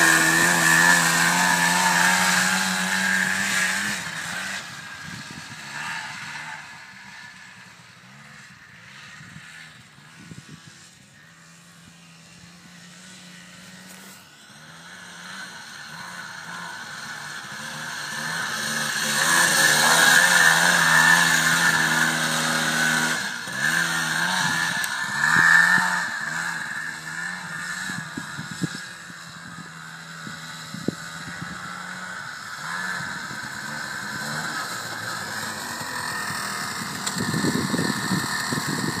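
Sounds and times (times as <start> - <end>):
buggy engine revving: 0.0 - 39.0
tyres on gravel: 32.2 - 39.0.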